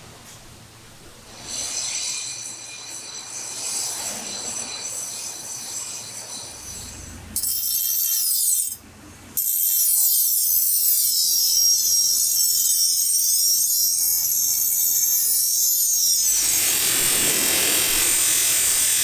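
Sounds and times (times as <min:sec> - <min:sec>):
high steady squealing whine: 0:01.3 - 0:07.8, 0:10.8 - 0:19.0
bench grinder grinding steel blade: 0:01.3 - 0:08.8, 0:09.4 - 0:19.0.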